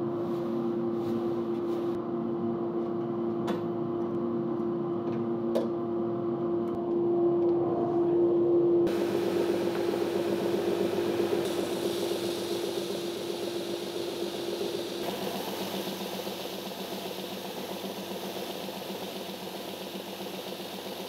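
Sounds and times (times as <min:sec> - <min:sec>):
sander motor humming: 0:08.9 - 0:21.0.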